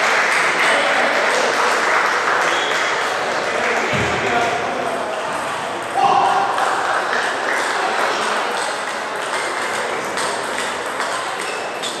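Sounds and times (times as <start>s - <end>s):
murmur of chatter: 0.0s - 12.0s
table tennis balls clicking: 6.6s - 12.0s.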